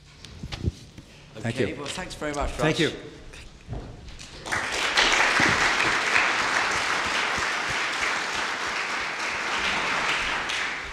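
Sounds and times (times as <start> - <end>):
audience applauding: 4.2 - 10.9.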